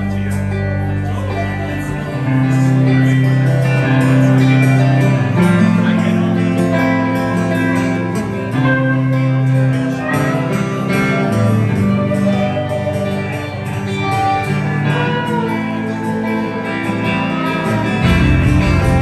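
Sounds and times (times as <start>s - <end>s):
acoustic guitar: 0.0s - 19.0s
electric guitar: 0.0s - 19.0s
long held bass notes: 0.0s - 19.0s.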